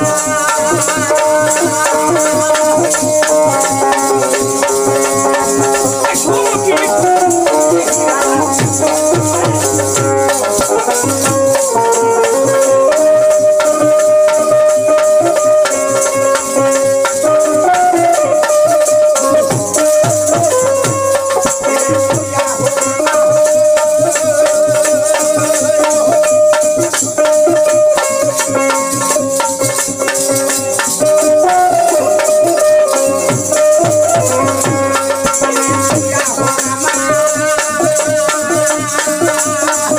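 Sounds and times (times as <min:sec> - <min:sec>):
clappers with metal jingles: 0:00.0 - 0:39.9
dholak drum strokes: 0:00.0 - 0:39.9
harmonium melody: 0:00.0 - 0:39.9.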